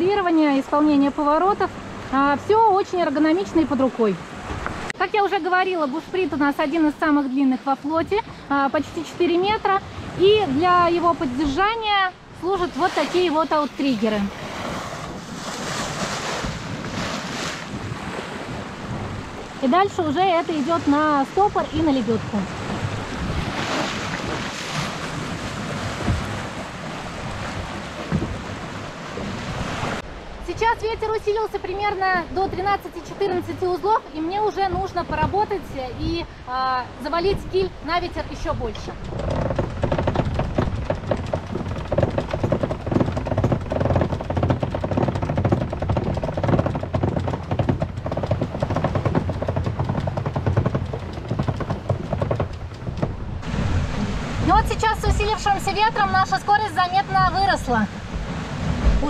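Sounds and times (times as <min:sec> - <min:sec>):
hull thumping on waves: 0:00.0 - 0:59.0
water rushing along boat hull: 0:00.0 - 0:59.0
wind buffeting microphone: 0:00.0 - 0:59.0
winch clicking rapidly: 0:38.6 - 0:53.2.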